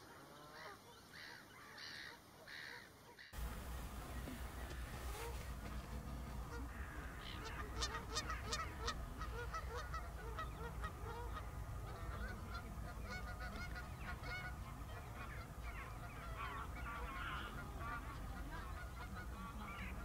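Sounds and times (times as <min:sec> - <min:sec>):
geese honking and cackling: 0:00.0 - 0:20.0.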